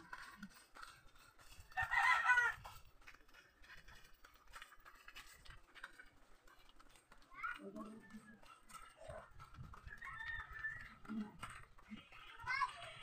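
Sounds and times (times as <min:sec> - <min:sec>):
rooster crowing: 0:01.8 - 0:02.7.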